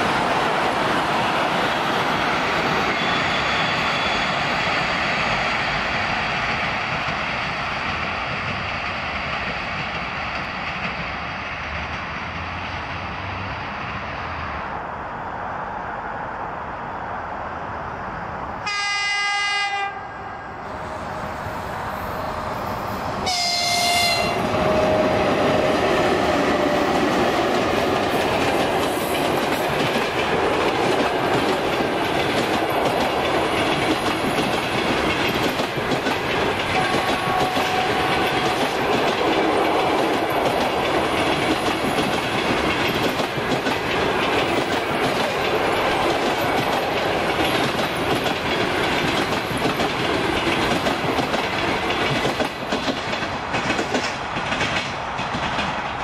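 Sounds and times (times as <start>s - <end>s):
train rolling past: 0.0s - 56.0s
locomotive horn blast: 18.6s - 21.3s, 23.2s - 25.4s, 36.7s - 38.8s.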